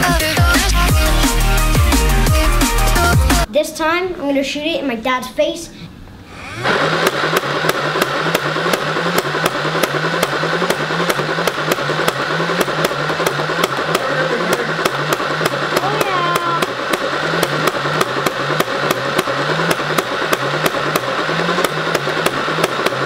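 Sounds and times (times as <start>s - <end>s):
flywheel motor whirring: 6.3s - 23.0s.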